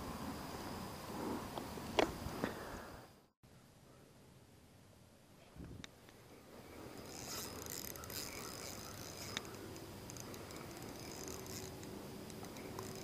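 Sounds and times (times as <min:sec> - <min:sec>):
fishing reel gears whirring: 0:06.6 - 0:13.0.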